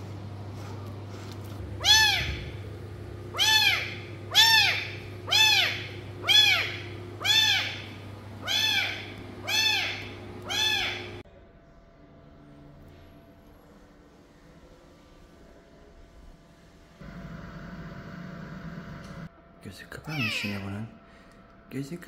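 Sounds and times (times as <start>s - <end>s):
faint hum: 0.0s - 22.0s
kitten mewing: 1.8s - 2.7s, 3.3s - 11.2s, 20.1s - 20.6s.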